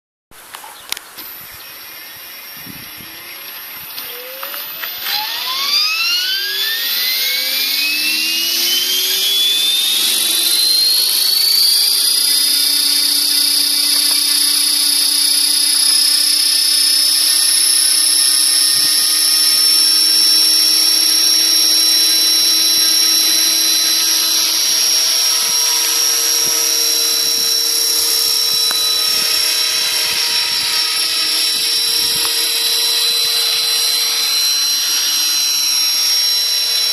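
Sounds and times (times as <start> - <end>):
model helicopter whine: 0.8 - 36.9.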